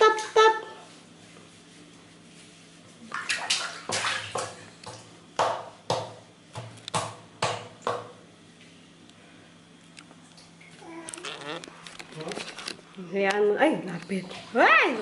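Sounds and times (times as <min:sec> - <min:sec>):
water splashing in basin: 0:03.0 - 0:05.1, 0:14.1 - 0:15.0.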